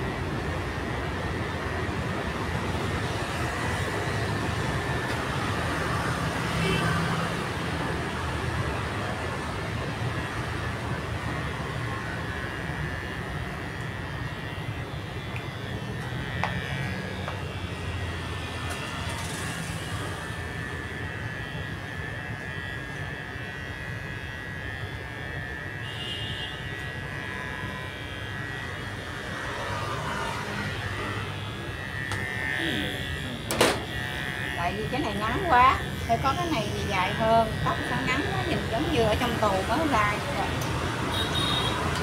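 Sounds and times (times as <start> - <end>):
electric hair clipper buzzing: 0.0 - 42.0.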